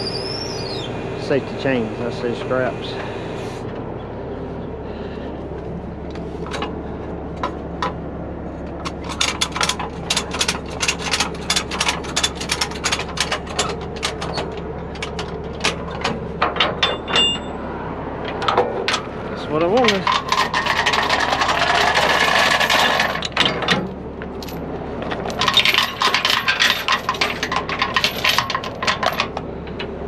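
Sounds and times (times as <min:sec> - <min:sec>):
truck engine idling: 0:00.0 - 0:30.0
metal chains clinking: 0:24.4 - 0:29.3.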